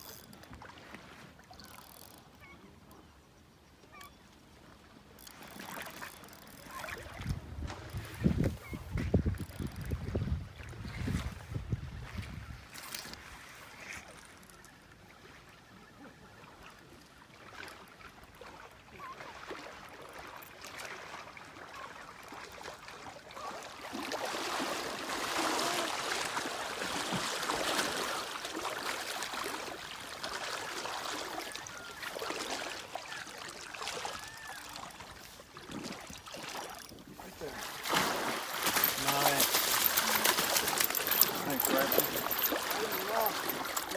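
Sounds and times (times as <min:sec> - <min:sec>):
river lapping: 0:00.0 - 0:43.9
water splashing around legs: 0:17.4 - 0:43.9.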